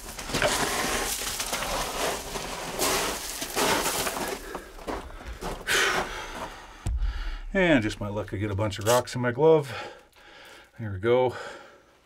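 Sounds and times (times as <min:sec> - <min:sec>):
small stones shifting: 0:00.0 - 0:06.8
gravel crunching under crawling: 0:00.0 - 0:07.1.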